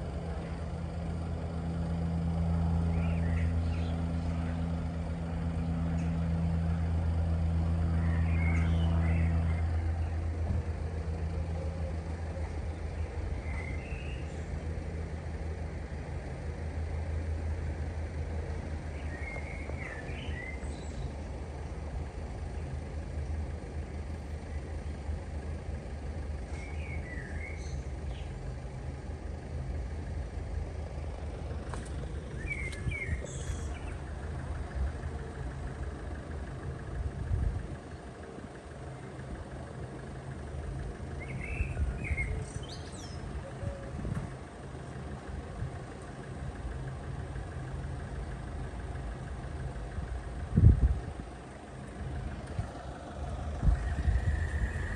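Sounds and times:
car engines idling: 0.0 - 54.9
small bird chirping: 2.9 - 4.6, 7.9 - 10.2, 12.4 - 14.6, 18.8 - 21.8, 26.5 - 28.4, 31.8 - 34.0, 41.2 - 43.9.

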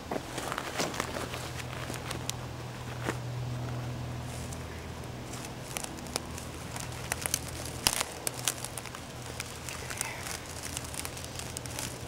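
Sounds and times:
faint low hum: 0.0 - 12.0
small clicks and crackles: 0.3 - 12.0
brush and clothing rustling: 4.2 - 12.0.

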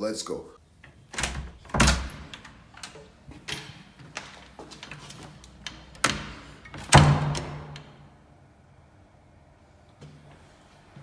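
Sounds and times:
wooden door knocks and clicks: 1.1 - 4.3, 5.6 - 8.0.

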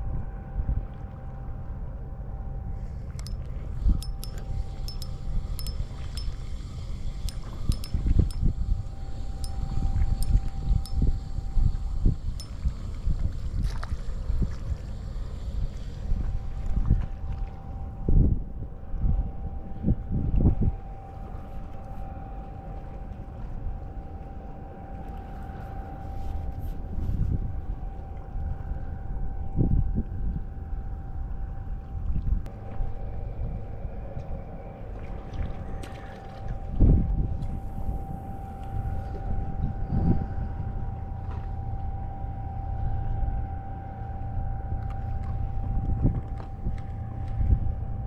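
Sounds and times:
wind rumbling on microphone: 0.0 - 24.0, 24.9 - 43.5, 44.6 - 48.0
faint steady hum: 0.0 - 48.0
faint steady tone: 0.0 - 48.0
light clicks of reel: 4.0 - 6.4
wind buffeting microphone: 35.5 - 41.0.

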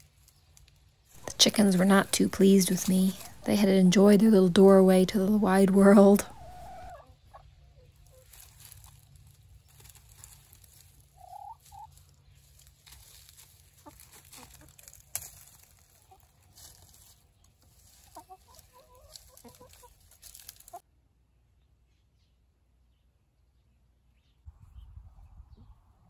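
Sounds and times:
rustling in dry leaves: 0.0 - 3.4, 7.8 - 20.8
chickens clucking: 1.2 - 20.8.

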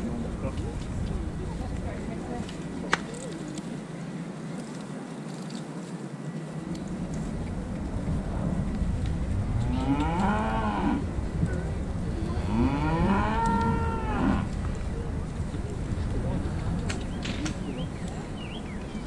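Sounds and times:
cattle mooing: 9.6 - 11.0, 12.3 - 14.5.

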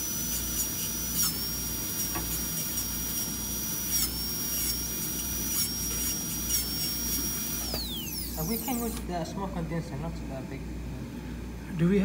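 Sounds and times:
dental drill whining: 0.0 - 9.1.

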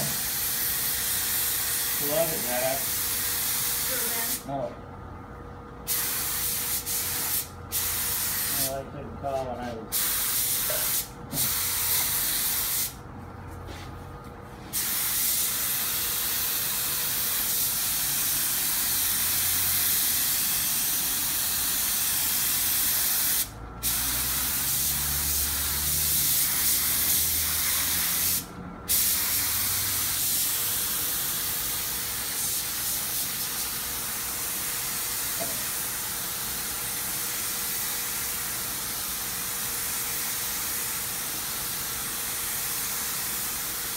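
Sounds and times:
spray gun hissing: 5.9 - 8.7, 14.8 - 36.0.

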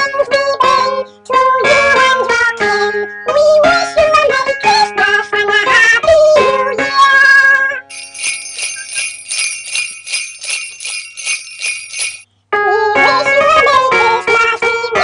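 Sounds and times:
background music tune: 7.9 - 12.2
sleigh bells shaking in rhythm: 7.9 - 12.2.

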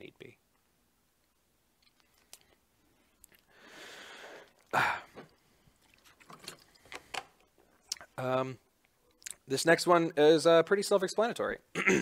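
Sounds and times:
person breathing: 2.8 - 5.8.

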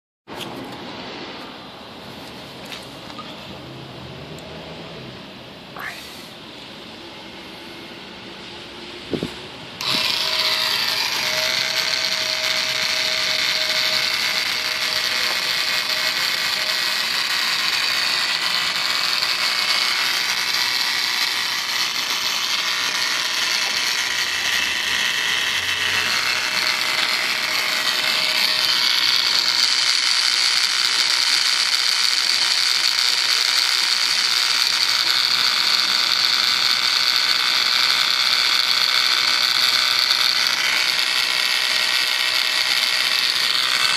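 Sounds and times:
oil pump whining: 9.1 - 43.9.

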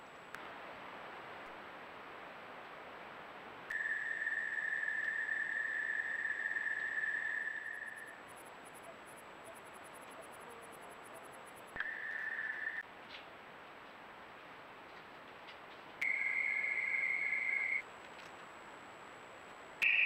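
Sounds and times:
background hiss: 0.0 - 20.0
cricket trilling: 3.7 - 12.8, 16.0 - 17.9.

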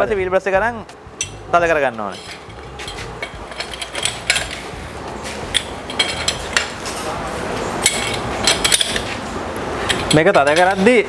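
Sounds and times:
wheel brace clinking on wheel nuts: 1.2 - 4.8, 5.4 - 6.9, 7.8 - 9.2, 9.8 - 11.0.

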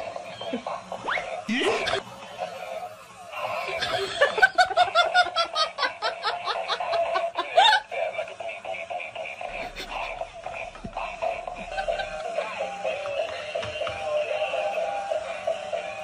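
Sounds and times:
person laughing: 1.5 - 2.0, 3.4 - 12.8
steady tone: 9.4 - 13.5.

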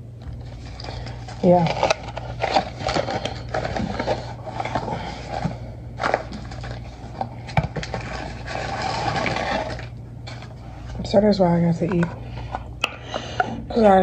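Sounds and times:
steady low hum: 0.0 - 14.0
packaging rustling: 0.3 - 11.1.

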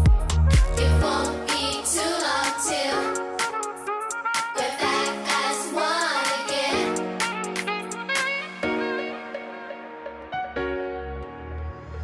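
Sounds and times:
electronic dance music: 0.0 - 10.0
high sung vocal: 0.7 - 3.5, 4.5 - 7.3.

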